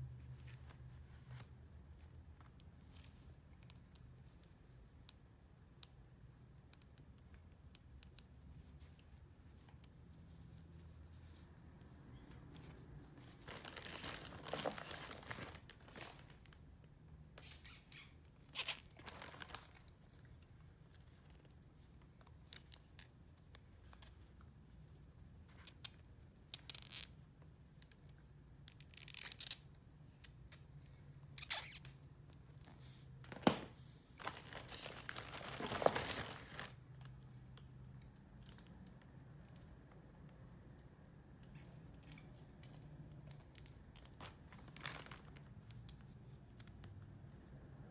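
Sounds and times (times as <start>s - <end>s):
doll clothes rustling and scraping: 8.4s - 16.4s, 31.4s - 37.4s, 44.0s - 46.5s.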